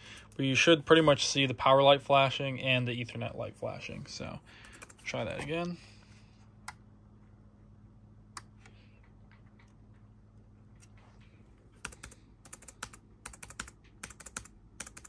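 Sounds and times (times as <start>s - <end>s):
rapid laptop keystrokes: 4.6s - 5.0s, 11.8s - 15.0s
isolated keyboard clicks: 11.8s - 15.0s.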